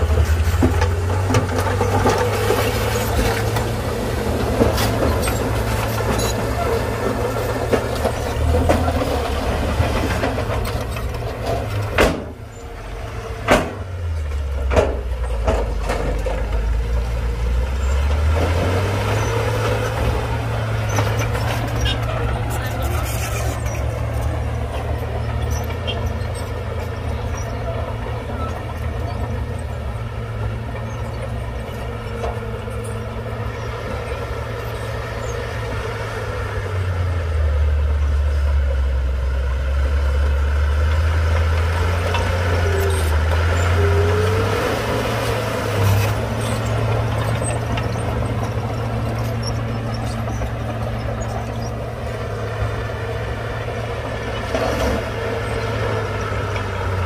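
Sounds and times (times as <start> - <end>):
heavy diesel machinery running: 0.0 - 57.0
rising squeal: 1.7 - 11.3, 17.5 - 29.7.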